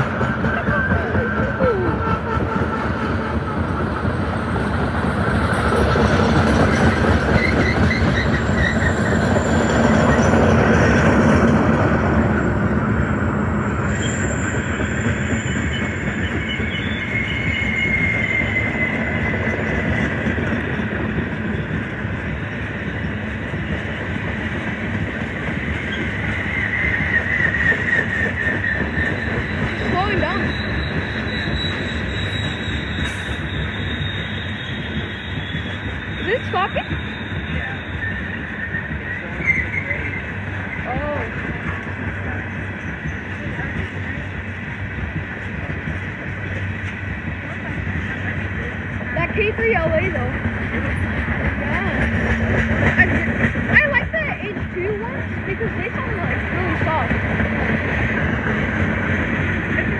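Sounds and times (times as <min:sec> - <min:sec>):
high-pitched wheel squeals: 0:00.0 - 0:44.6
freight train wheels rumbling: 0:00.0 - 0:59.9.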